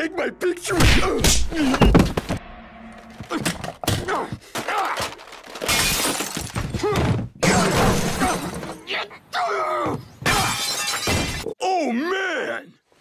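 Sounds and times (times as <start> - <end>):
crashing and breaking: 3.2 - 6.8
glass shattering: 5.0 - 6.7, 7.4 - 8.8, 10.3 - 11.5.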